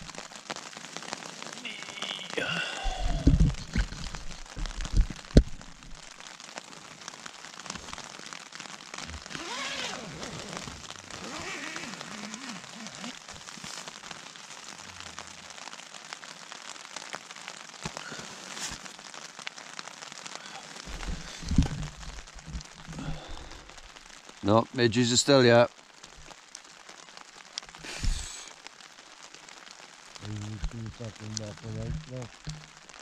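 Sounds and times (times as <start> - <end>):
rain on tent fabric: 0.0 - 33.0
low thumps: 2.9 - 6.1, 20.9 - 23.0, 31.7 - 32.8
sharp knocks: 31.8 - 32.7.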